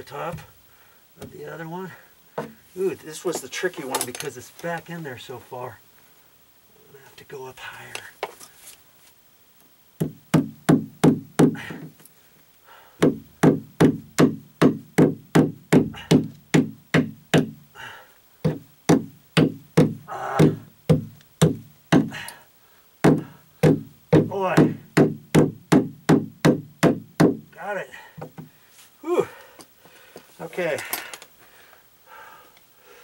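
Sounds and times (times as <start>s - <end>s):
hammer knocking staples into wood: 13.0s - 17.6s, 18.5s - 22.2s, 23.0s - 27.4s.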